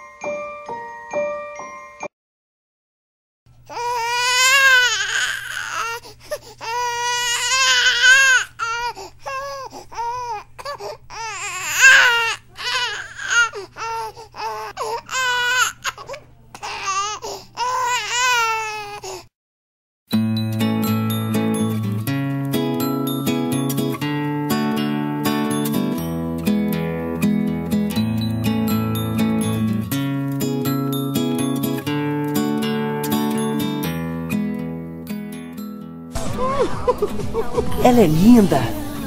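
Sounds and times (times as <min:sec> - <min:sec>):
newborn baby crying: 0:03.7 - 0:19.2.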